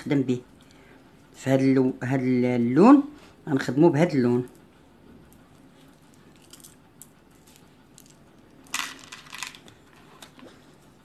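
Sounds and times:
beads clattering: 0:07.5 - 0:09.7.

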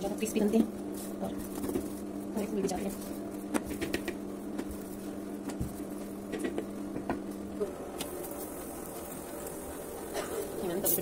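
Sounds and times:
steady low hum: 0:00.0 - 0:11.0
dough tapping on metal plate: 0:03.5 - 0:04.7.

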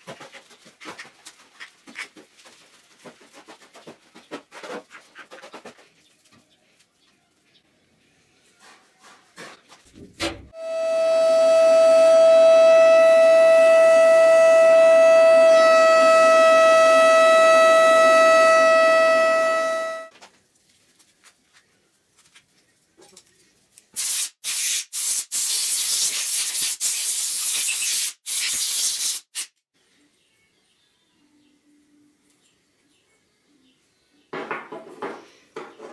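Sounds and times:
short loud hissing bursts: 0:24.0 - 0:29.6.

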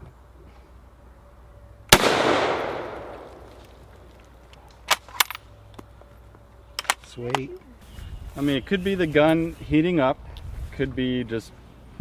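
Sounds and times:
rifle shot echoing: 0:01.9 - 0:03.6.

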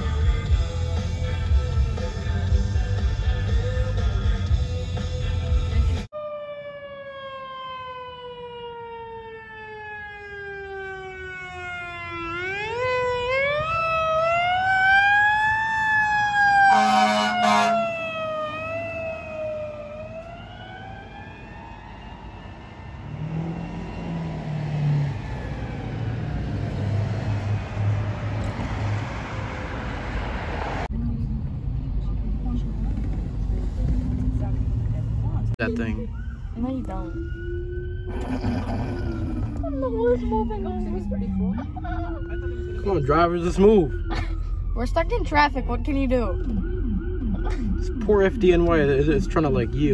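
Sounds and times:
road traffic noise: 0:00.0 - 0:49.9
ambulance siren wailing: 0:06.0 - 0:30.9, 0:35.5 - 0:49.9
vehicle horn blasts: 0:16.7 - 0:17.8.

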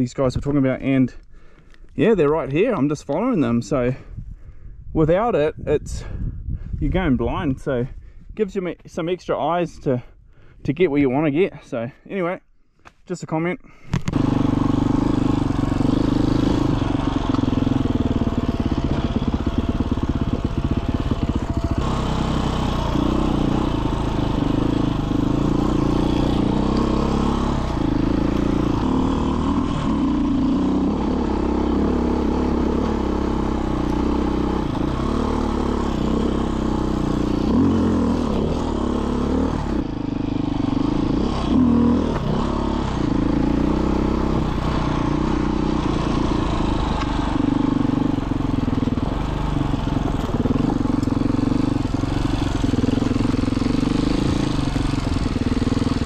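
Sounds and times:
motorcycle engine revving: 0:13.9 - 0:56.0.

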